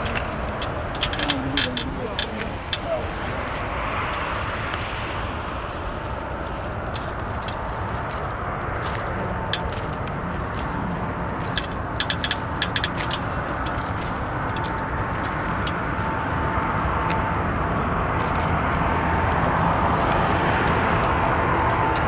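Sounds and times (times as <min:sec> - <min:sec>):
jet engine rumble with whine: 0:00.0 - 0:22.0
sharp clicks: 0:11.4 - 0:14.0.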